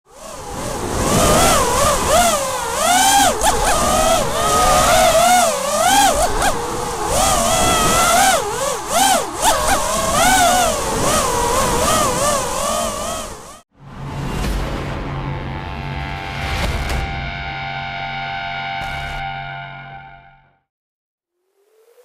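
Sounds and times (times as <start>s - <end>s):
drone motors whining: 0.1s - 13.6s.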